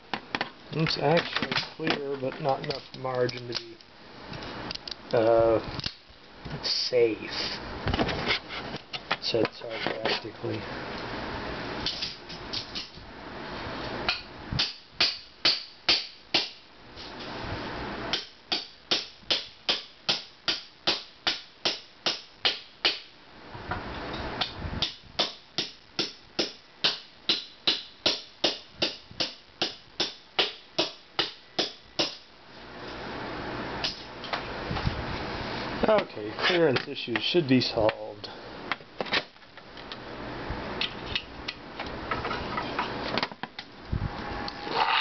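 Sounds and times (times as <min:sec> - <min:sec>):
steady noise: 0:00.0 - 0:45.0
hand tool strokes: 0:44.6 - 0:45.0.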